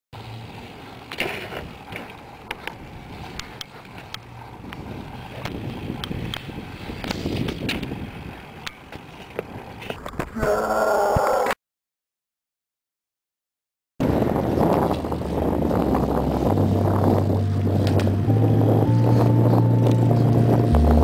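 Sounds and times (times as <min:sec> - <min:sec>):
bike tyres rolling on asphalt: 0:00.2 - 0:10.4, 0:14.0 - 0:18.2.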